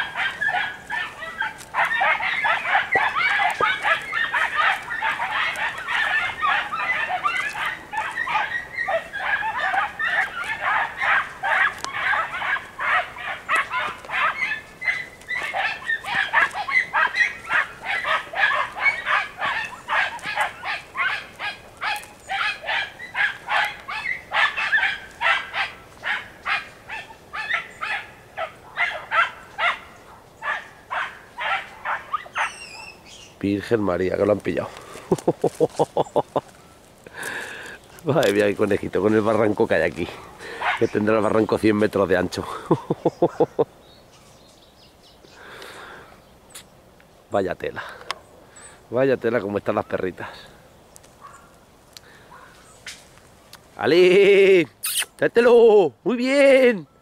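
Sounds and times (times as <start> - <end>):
dogs yelping and barking: 0.0 - 33.8, 34.6 - 41.8, 51.1 - 53.0.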